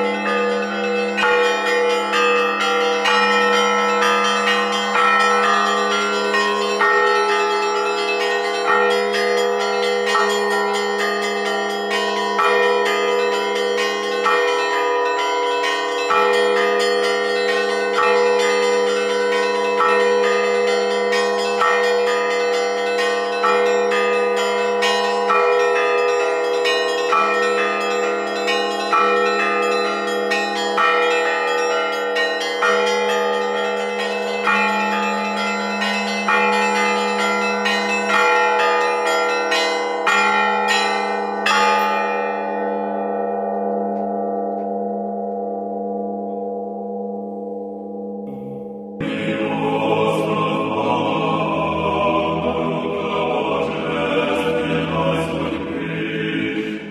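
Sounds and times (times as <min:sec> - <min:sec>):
church bells pealing: 0:00.0 - 0:56.9
heavy bell stroke: 0:46.1 - 0:56.9.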